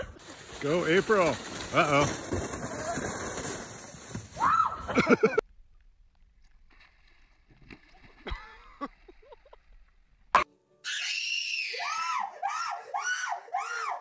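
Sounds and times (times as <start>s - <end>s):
thump and splash into water: 6.7s - 8.9s.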